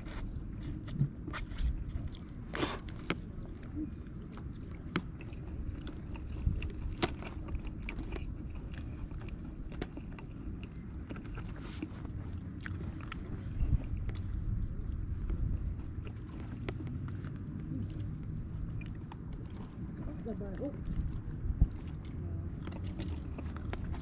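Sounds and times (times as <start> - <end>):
mouth clicks and smacks: 0.0 - 14.5
person chewing: 0.0 - 24.0.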